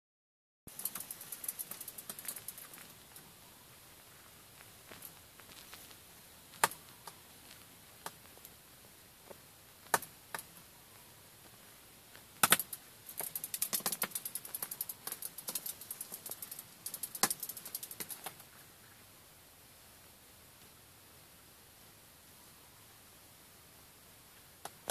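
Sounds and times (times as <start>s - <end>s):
birds tapping on windshield glass: 0.7s - 3.2s, 12.4s - 18.4s.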